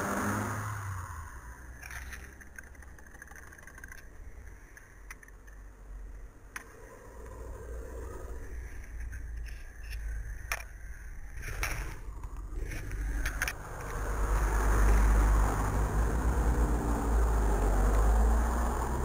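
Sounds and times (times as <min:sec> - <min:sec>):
road traffic rumble: 0:00.0 - 0:19.0
sharp clicks: 0:08.8 - 0:15.6.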